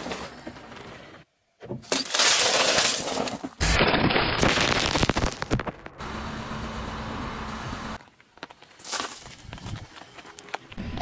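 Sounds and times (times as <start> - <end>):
sharp cracks and pops: 2.0 - 6.0.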